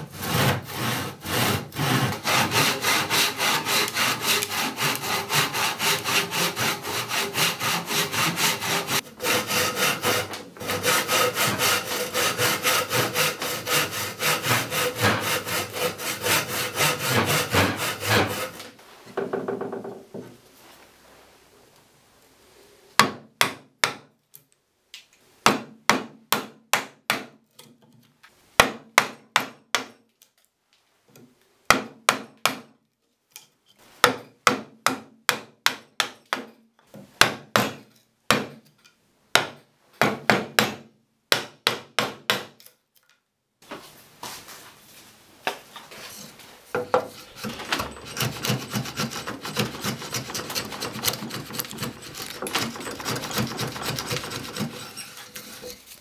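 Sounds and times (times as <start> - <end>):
blade scraping wood: 0.0 - 18.8, 45.9 - 56.0.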